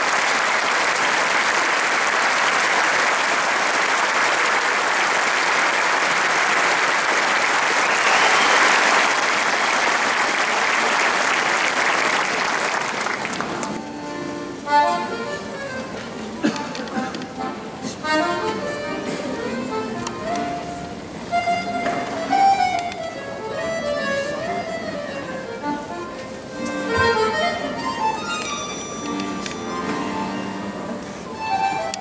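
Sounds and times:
audience applauding: 0.0s - 13.8s
accordion held notes: 13.4s - 32.0s.

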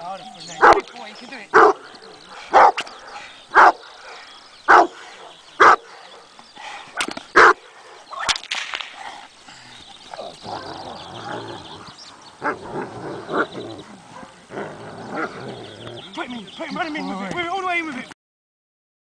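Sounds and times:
large dog barking deeply: 0.5s - 0.9s, 1.5s - 6.3s, 7.4s - 8.0s, 12.4s - 16.0s.

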